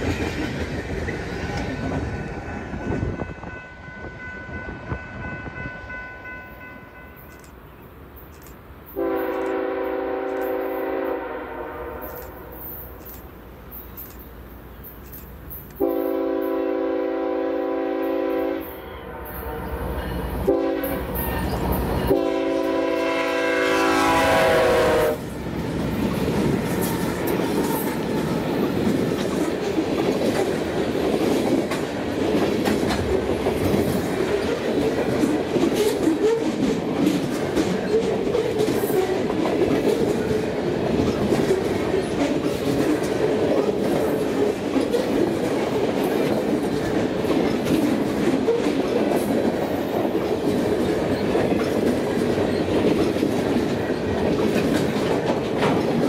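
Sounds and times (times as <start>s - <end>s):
wheels clacking over rail joints: 0.0s - 2.4s, 25.4s - 56.0s
locomotive air horn blasts: 9.0s - 12.6s, 15.8s - 21.2s, 22.1s - 25.2s.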